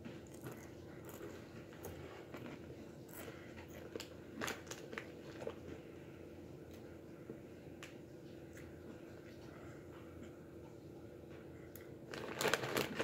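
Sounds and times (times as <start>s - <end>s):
tortilla chips being crunched: 12.1s - 13.0s.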